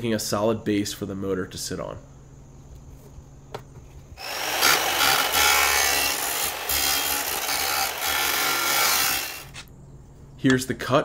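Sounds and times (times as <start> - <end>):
miter saw cutting metal: 4.2 - 9.7.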